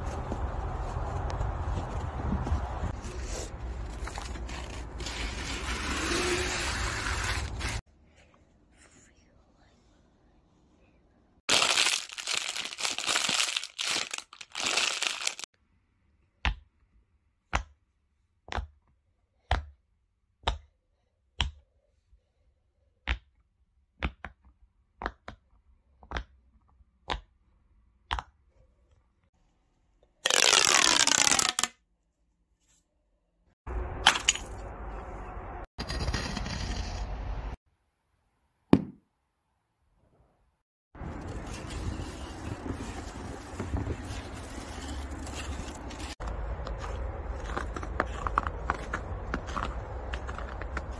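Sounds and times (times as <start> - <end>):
foil packet crinkling: 11.5 - 15.5, 41.1 - 46.2.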